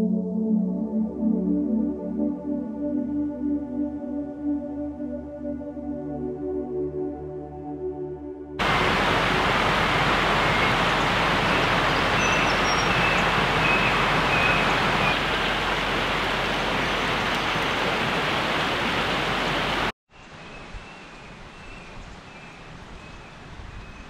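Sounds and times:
creek water rushing over rocks: 8.6s - 19.9s.

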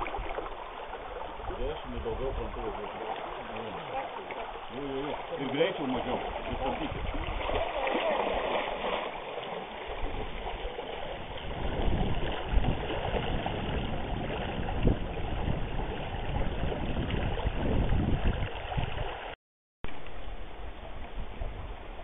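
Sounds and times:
wind buffeting microphone: 0.0s - 2.9s, 5.8s - 7.8s, 9.8s - 19.3s, 20.8s - 22.0s
river water rushing over stones: 0.0s - 19.4s.

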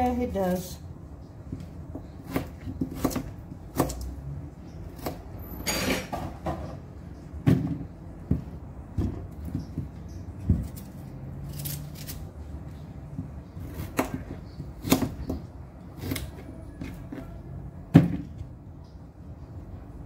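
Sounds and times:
knife peeling and cutting: 9.5s - 12.8s.

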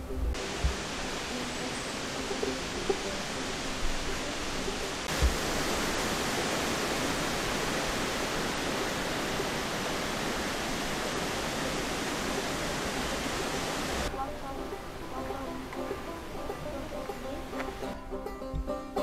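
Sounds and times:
water rushing through sluice gates: 0.0s - 19.0s
low thump: 5.1s - 5.5s.

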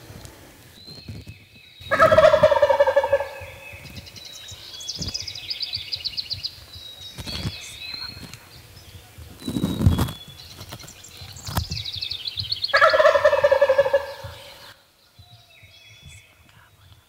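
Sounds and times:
high bird trill: 0.7s - 14.8s
turkey gobbling: 1.9s - 3.8s, 12.6s - 14.7s.

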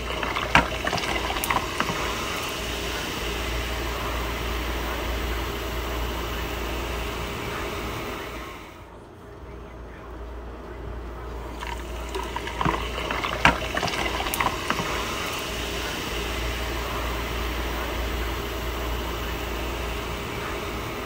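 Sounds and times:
drink pouring over ice: 0.0s - 4.5s, 11.4s - 19.2s
fizzing hiss: 0.0s - 8.8s, 11.3s - 21.0s.

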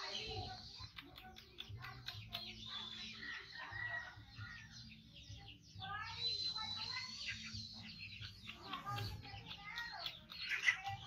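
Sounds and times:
birds chirping: 0.0s - 11.0s
chickens: 0.0s - 11.0s.

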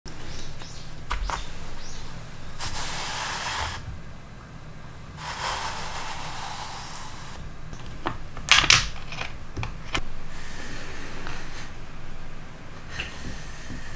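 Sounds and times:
plywood boards scraping: 2.6s - 4.0s.

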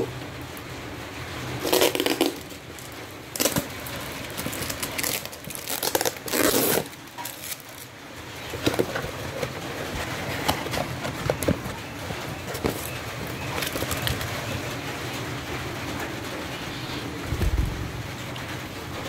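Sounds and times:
cardboard tearing and crumpling: 1.6s - 14.5s.

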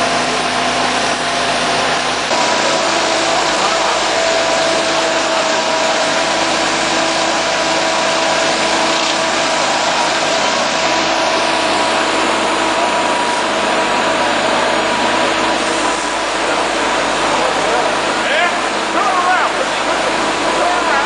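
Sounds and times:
fire engine motor and pump: 0.0s - 21.0s.

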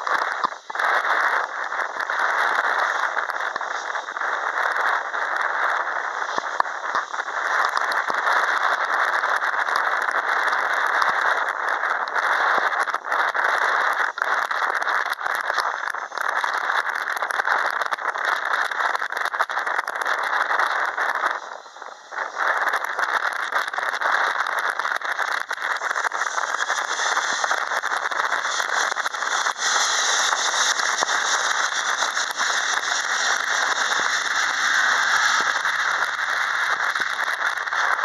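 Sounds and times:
crackles: 0.0s - 38.0s
jet engines roaring: 24.7s - 38.0s.

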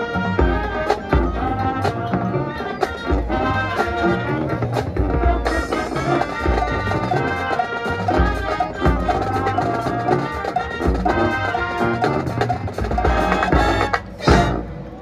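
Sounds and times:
brass section: 0.0s - 15.0s
drumline and bass drums: 0.0s - 15.0s
marching band playing: 0.0s - 15.0s.

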